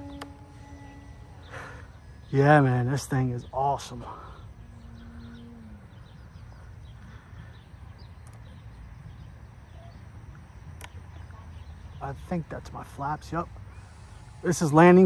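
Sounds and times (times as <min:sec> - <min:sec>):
faint hum dipping in pitch: 0:00.0 - 0:11.7
bird chirps: 0:00.0 - 0:14.7.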